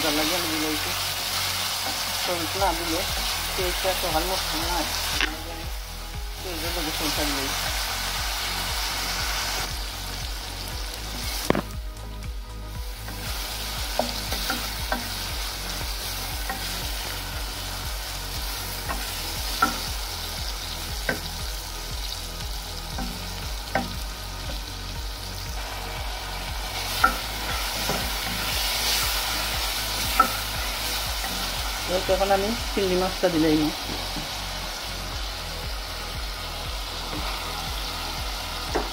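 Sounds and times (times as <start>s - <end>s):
onions sizzling in oil: 0.0s - 38.9s.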